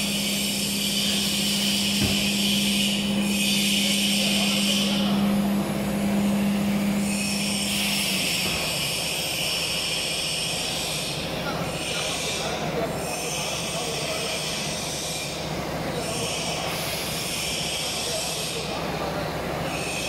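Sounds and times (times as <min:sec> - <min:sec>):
router machine hum: 0:00.0 - 0:20.0
short knock: 0:02.0 - 0:02.3.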